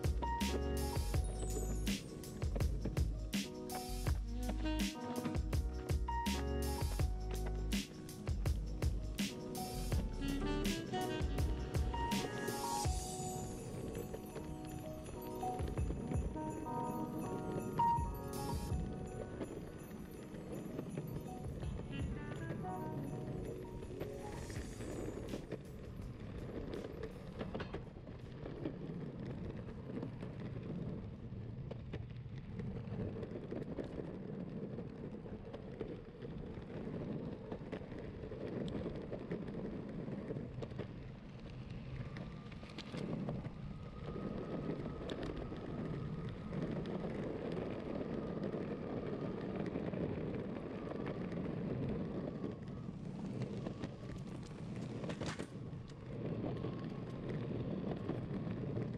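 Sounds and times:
wheels rolling on asphalt: 0.0 - 58.9
wind buffeting microphone: 12.8 - 58.9.

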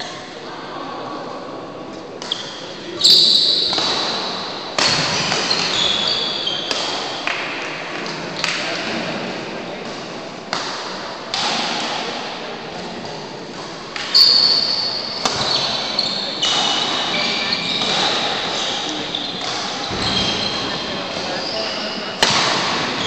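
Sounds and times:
rackets hitting shuttlecock: 3.6 - 8.9, 9.9 - 12.2, 13.0 - 14.4, 15.2 - 15.8, 16.4 - 21.4, 22.1 - 23.0
shoes squeaking on wooden court: 4.8 - 6.8, 14.1 - 22.4.

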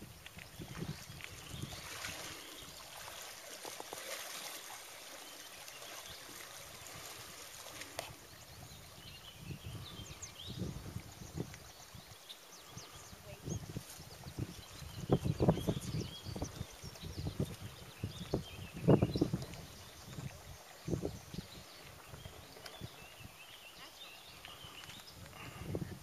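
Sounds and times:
river water trickling and lapping: 0.0 - 26.0.

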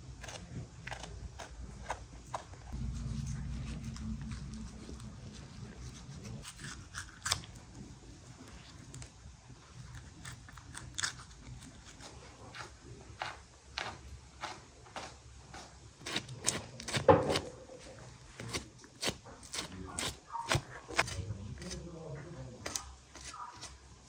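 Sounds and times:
wet tearing of membrane: 5.9 - 7.7.

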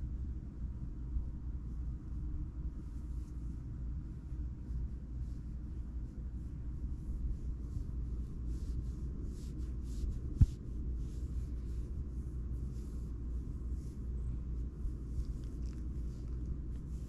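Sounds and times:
fingers rustling in fur: 1.5 - 17.0
cat purring: 4.2 - 17.0.

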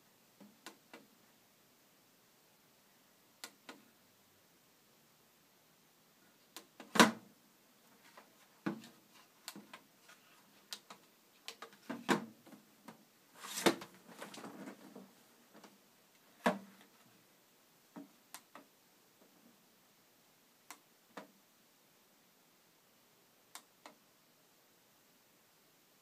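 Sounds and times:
plastic rubbing and rattling: 13.4 - 15.7.

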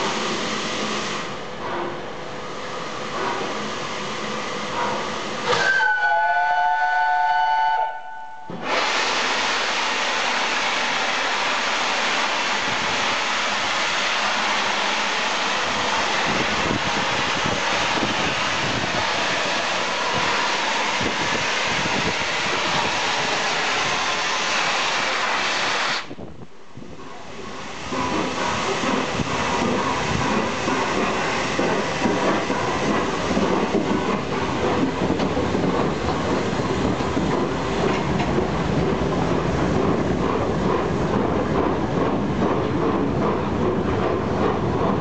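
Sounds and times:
loud hiss of steam: 0.0 - 1.5, 2.4 - 6.8, 8.5 - 26.4, 27.1 - 41.2
steam locomotive whistle: 5.4 - 8.9.

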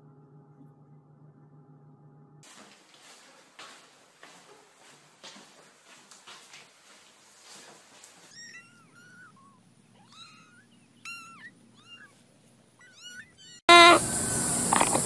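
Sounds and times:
mop scuffing on wooden floor: 2.4 - 8.4
kitten mewing: 12.8 - 14.0.

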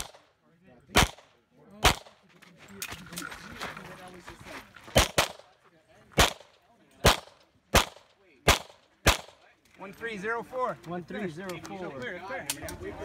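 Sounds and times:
handgun shots: 0.9 - 2.2, 6.2 - 9.4.

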